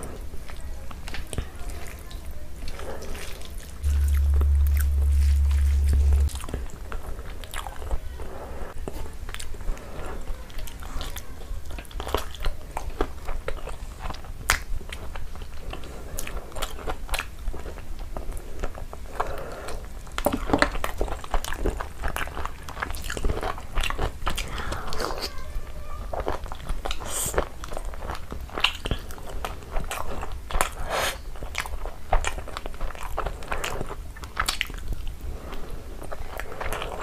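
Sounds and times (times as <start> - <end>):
loud low hum: 3.8 - 6.6
chewing and lip smacking: 10.4 - 25.4, 26.1 - 37.0.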